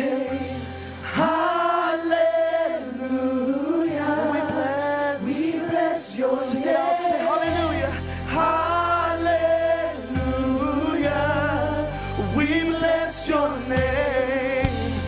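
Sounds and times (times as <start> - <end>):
group singing worship song: 0.0 - 15.0
sustained low bass notes: 7.5 - 15.0.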